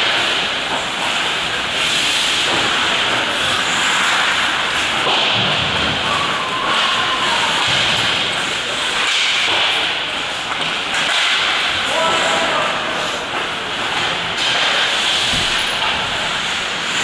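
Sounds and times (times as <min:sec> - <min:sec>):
skate blades hissing on ice: 0:00.0 - 0:05.3
hockey sticks and puck knocking: 0:00.0 - 0:06.9, 0:07.5 - 0:12.3, 0:13.3 - 0:16.2
players' voices: 0:05.9 - 0:15.2.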